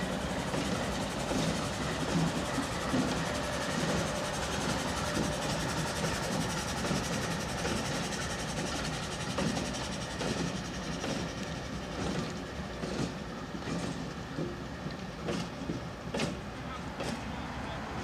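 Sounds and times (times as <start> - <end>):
locomotive engine running: 0.0 - 18.0
train wheels on rails: 0.0 - 18.0.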